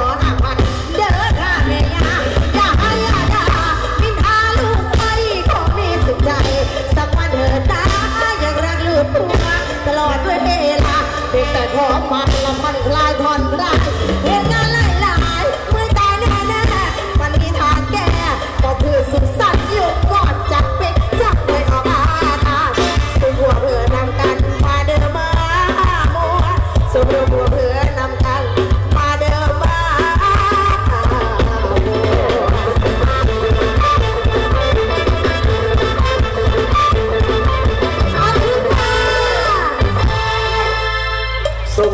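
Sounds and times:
person singing: 0:00.0 - 0:35.5, 0:37.6 - 0:40.7
live band music: 0:00.0 - 0:41.9.

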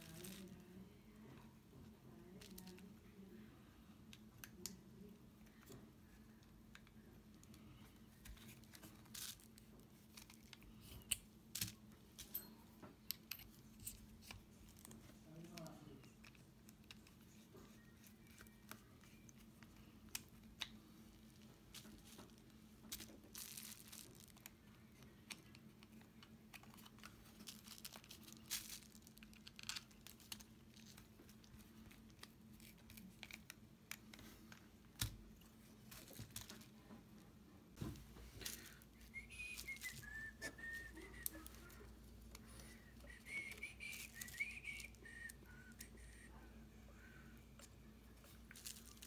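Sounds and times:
steady low hum: 0:00.0 - 0:49.0
wavering whistle: 0:39.1 - 0:41.4, 0:42.7 - 0:46.3.

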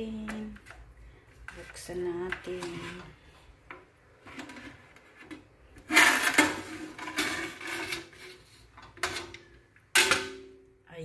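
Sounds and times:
metal lid scraping pot rim: 0:04.3 - 0:09.4.

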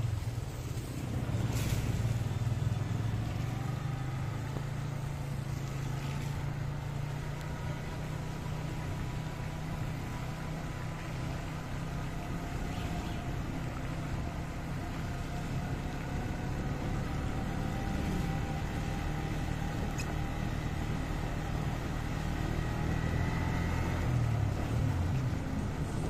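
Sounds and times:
motorcycle engine running: 0:00.0 - 0:26.0
tyres on wet road: 0:00.0 - 0:26.0.

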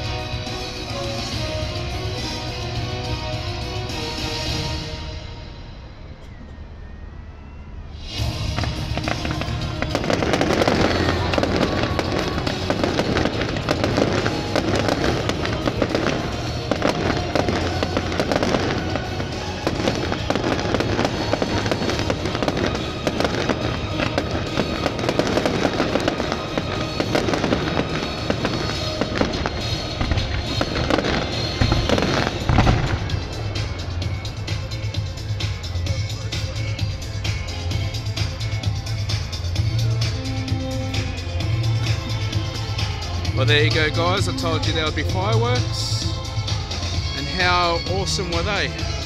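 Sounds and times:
loud music: 0:00.0 - 0:06.1, 0:07.9 - 0:49.0
fireworks popping and crackling: 0:08.2 - 0:49.0.

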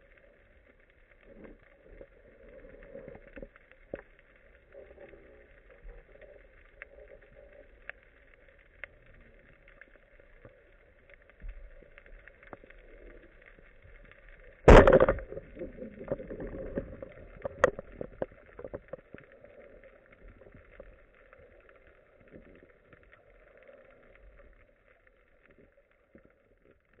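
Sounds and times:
speargun shot underwater: 0:14.7 - 0:17.8.

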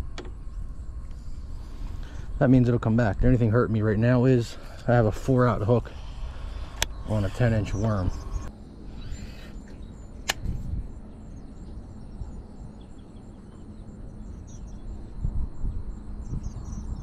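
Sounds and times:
wind rumble on microphone: 0:00.0 - 0:17.0
sharp click: 0:10.2 - 0:10.6.

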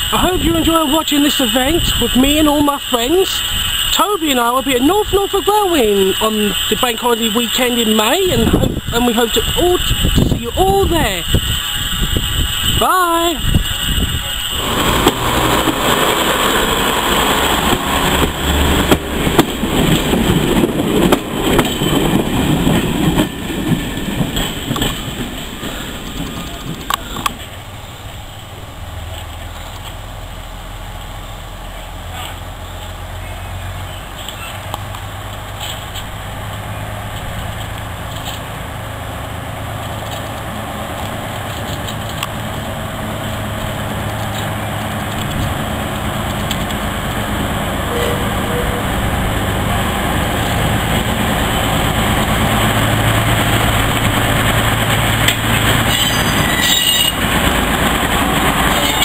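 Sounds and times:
locomotive engine drone: 0:00.0 - 0:59.0.

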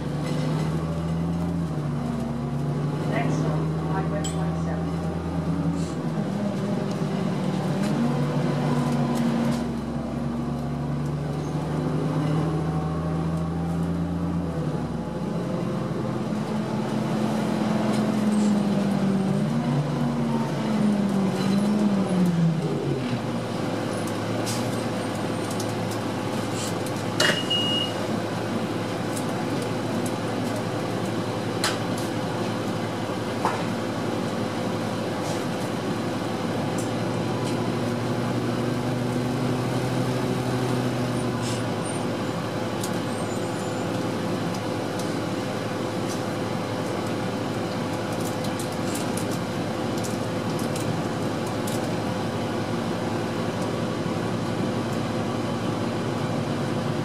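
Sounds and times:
bus diesel engine running: 0:00.0 - 0:57.0
short high beep: 0:27.4 - 0:28.0.

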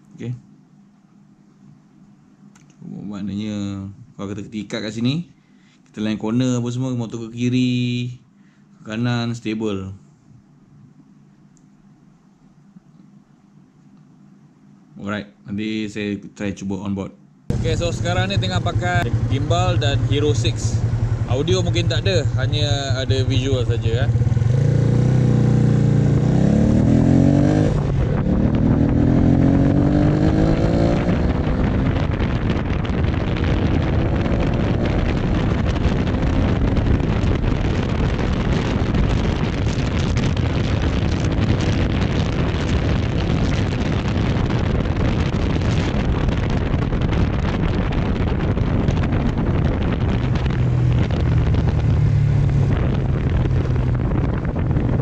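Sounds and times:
motorcycle engine accelerating: 0:17.5 - 0:55.0
wind noise on microphone: 0:17.5 - 0:55.0.

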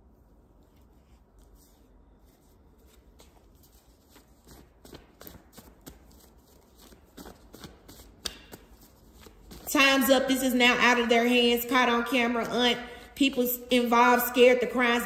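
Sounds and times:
cards being shuffled: 0:00.6 - 0:09.7.

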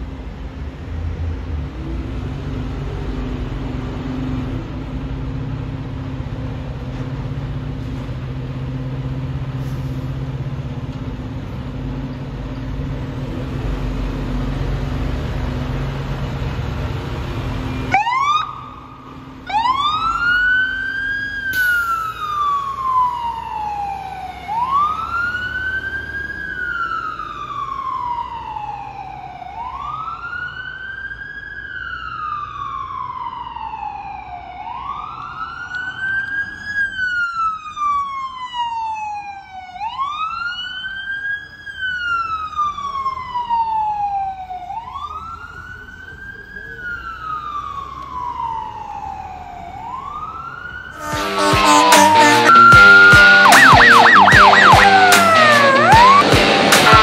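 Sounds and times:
diesel engine rumbling: 0:00.0 - 0:28.8, 0:41.0 - 0:57.0
fire engine siren wailing: 0:13.2 - 0:57.0.

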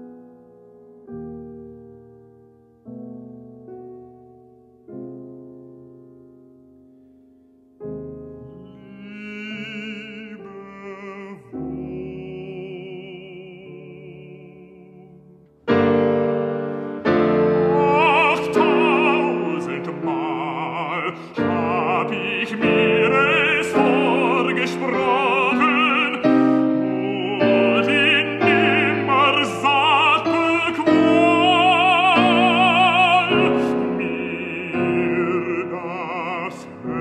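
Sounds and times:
piano chords: 0:00.0 - 0:37.0
baritone singing with vibrato: 0:08.5 - 0:15.8, 0:17.0 - 0:37.0.

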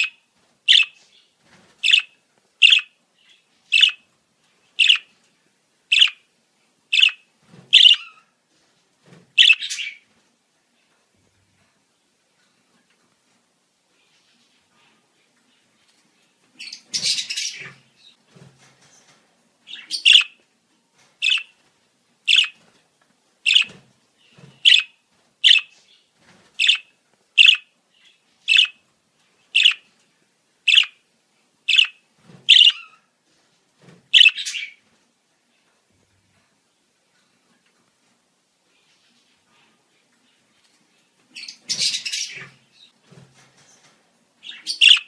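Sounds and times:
budgerigar chattering and chirping: 0:00.0 - 0:01.0, 0:01.8 - 0:02.9, 0:03.8 - 0:04.0, 0:04.8 - 0:05.1, 0:05.9 - 0:06.2, 0:07.0 - 0:07.2, 0:07.8 - 0:08.1, 0:19.8 - 0:20.3, 0:21.2 - 0:21.5, 0:22.3 - 0:22.6, 0:23.5 - 0:23.7, 0:24.7 - 0:24.9, 0:25.5 - 0:25.7, 0:26.6 - 0:26.8, 0:27.4 - 0:27.7, 0:28.5 - 0:28.8, 0:29.6 - 0:29.8, 0:30.7 - 0:31.0, 0:31.7 - 0:32.9, 0:34.2 - 0:34.7, 0:44.5 - 0:45.0.

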